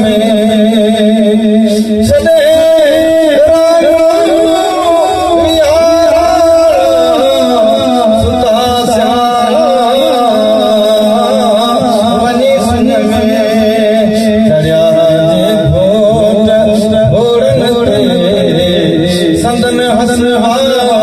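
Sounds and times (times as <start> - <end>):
man chanting through a microphone: 0.0 - 21.0.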